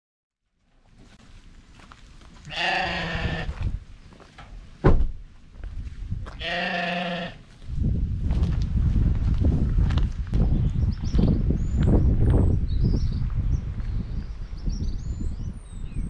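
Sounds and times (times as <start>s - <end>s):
livestock animal bleating: 2.4s - 3.6s, 6.4s - 7.4s.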